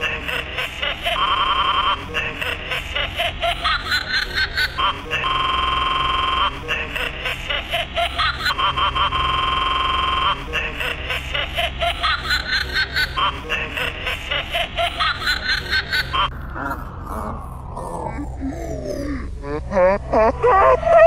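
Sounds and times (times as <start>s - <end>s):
creepy doll giggling: 0.0s - 21.0s
low electrical hum: 0.0s - 21.0s
steady buzzing tone: 5.2s - 6.8s, 8.5s - 10.8s.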